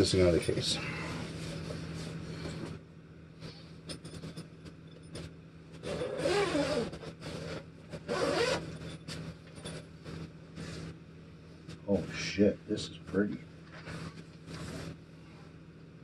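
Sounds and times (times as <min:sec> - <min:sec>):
zipper being pulled open: 0:05.8 - 0:08.8.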